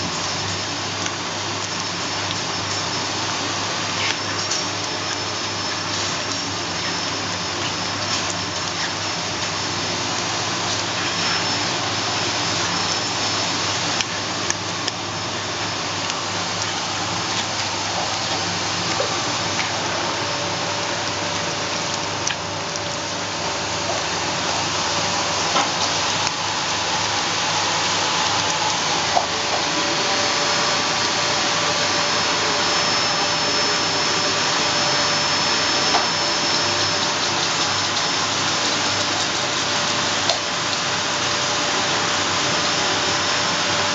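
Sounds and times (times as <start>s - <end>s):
steady rushing appliance noise: 0.0s - 43.9s
puppy chewing bone: 13.9s - 31.2s, 35.0s - 40.5s.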